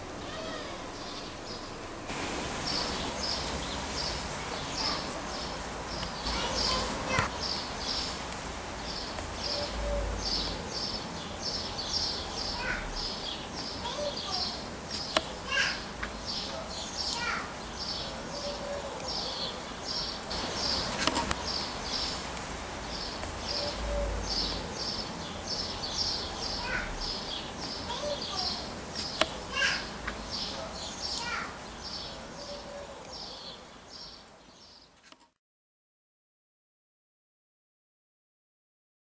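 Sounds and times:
lower falling bird call: 0.0s - 34.7s
birds chirping: 0.0s - 34.9s.

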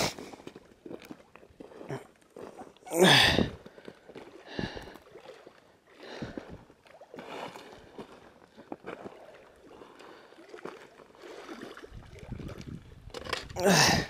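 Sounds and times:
footsteps over rocky ground: 0.0s - 5.0s.

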